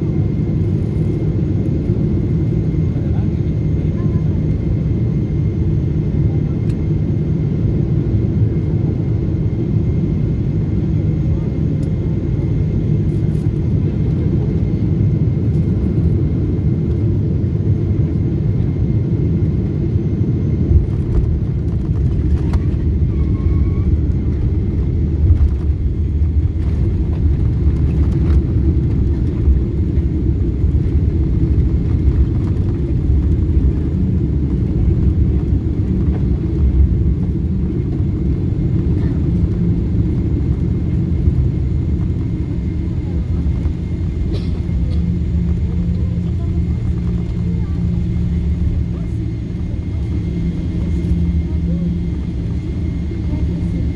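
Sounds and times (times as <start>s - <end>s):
jet engines in reverse thrust: 0.0s - 53.9s
wheels rumbling on runway: 17.9s - 53.9s.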